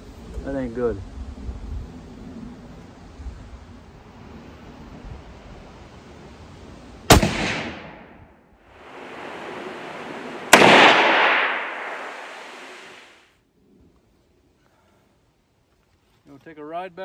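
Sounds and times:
rifle shots echoing: 0:07.1 - 0:08.2, 0:08.8 - 0:13.0.

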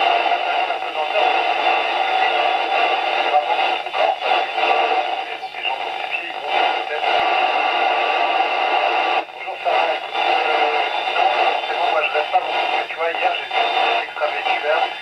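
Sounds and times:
noisy radio reception hiss: 0:00.0 - 0:15.0.

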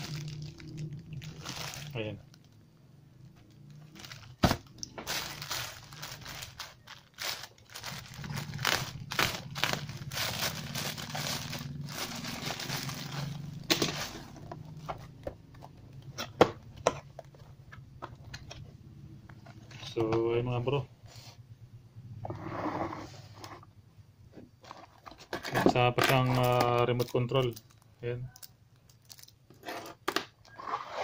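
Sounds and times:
plastic pouch crinkling and tearing: 0:00.0 - 0:02.6, 0:03.5 - 0:14.4.

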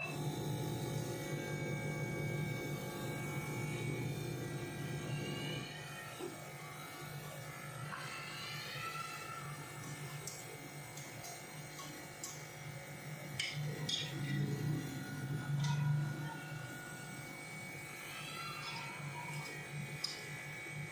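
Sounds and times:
small motor humming: 0:00.0 - 0:20.9.

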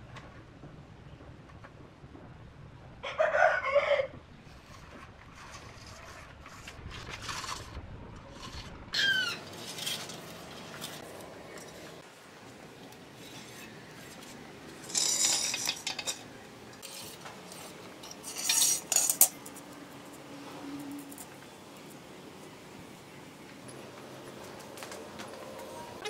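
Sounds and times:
wooden strips clattering on concrete: 0:04.6 - 0:12.1, 0:13.2 - 0:19.7.

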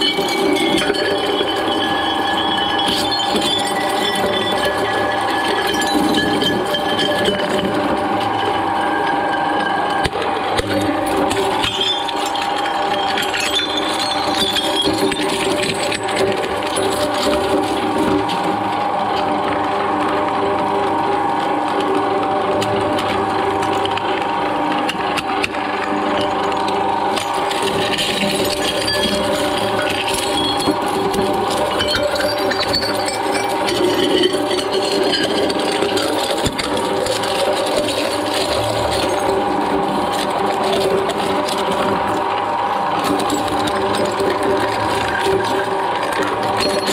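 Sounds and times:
glass shards clinking and rattling: 0:00.0 - 0:08.5, 0:10.8 - 0:18.3, 0:27.1 - 0:42.2, 0:42.9 - 0:46.9
glass bottles cracking: 0:00.0 - 0:08.6, 0:09.5 - 0:18.5, 0:25.4 - 0:46.9
shredder drone: 0:00.0 - 0:46.9.

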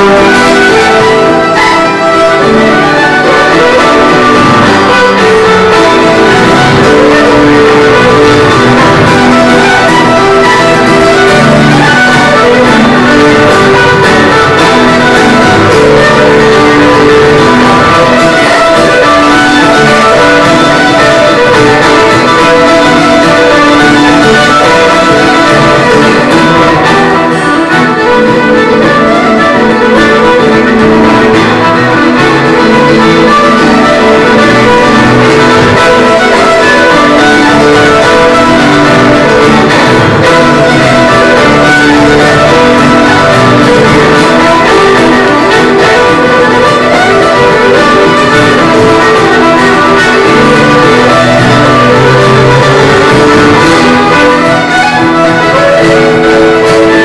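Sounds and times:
fiddle: 0:00.0 - 0:57.0
guitar: 0:00.0 - 0:57.0
live band playing: 0:00.0 - 0:57.0.

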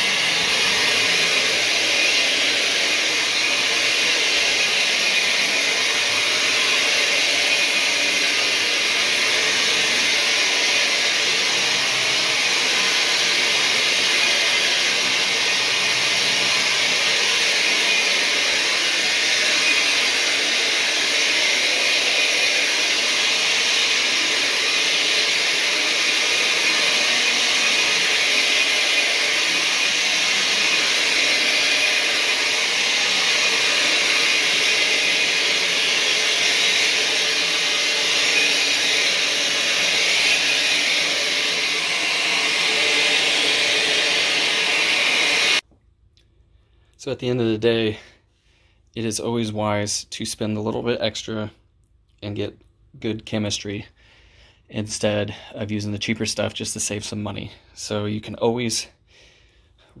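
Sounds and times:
carpet cleaning machine running: 0:00.0 - 0:45.6.

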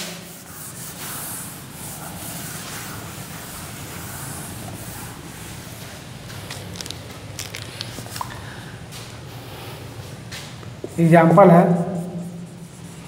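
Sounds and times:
marker scratching on whiteboard: 0:10.8 - 0:13.0.

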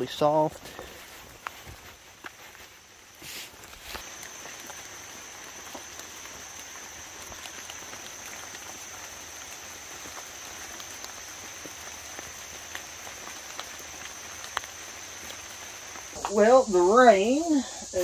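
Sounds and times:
soft even hiss: 0:00.0 - 0:18.0
water dripping on leaves: 0:00.0 - 0:18.0
high-pitched insect drone: 0:03.9 - 0:18.0.

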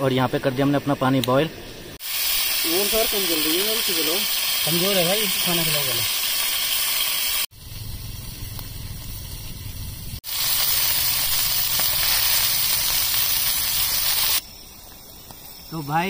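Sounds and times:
food hissing on camp stove: 0:01.3 - 0:16.0
low hum: 0:07.5 - 0:10.2.

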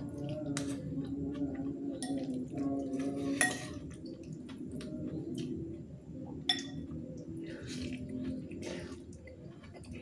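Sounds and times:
cutlery clinking on ceramic bowl: 0:03.4 - 0:03.8, 0:06.5 - 0:06.8.

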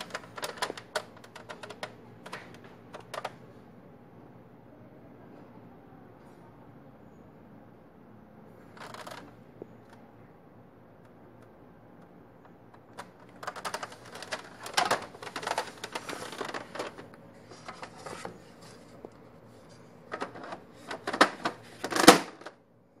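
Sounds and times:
electronic typewriter clattering: 0:12.8 - 0:18.3.

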